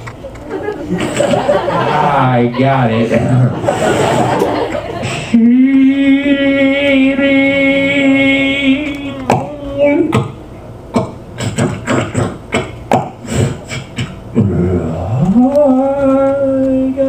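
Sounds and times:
man humming a tone: 5.2s - 10.3s, 11.0s - 17.0s.

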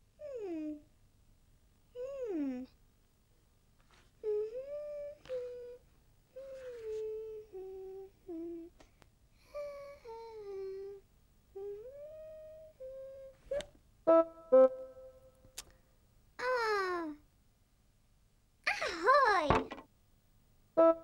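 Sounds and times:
cartoon voice humming a tune: 0.2s - 0.9s, 2.0s - 2.8s, 4.2s - 5.8s, 6.4s - 8.7s, 11.6s - 13.4s
faint scratchy noise: 1.6s - 17.3s.

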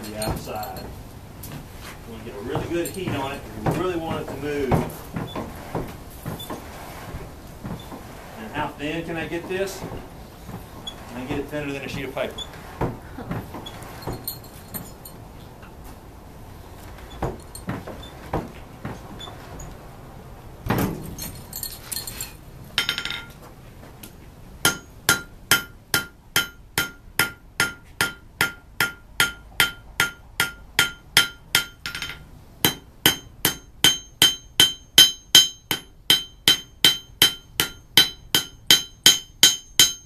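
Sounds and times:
hammer ringing on anvil: 24.7s - 40.0s.

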